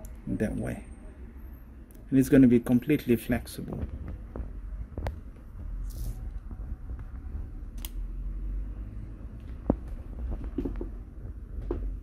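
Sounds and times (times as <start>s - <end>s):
low steady rumble: 3.8s - 12.0s.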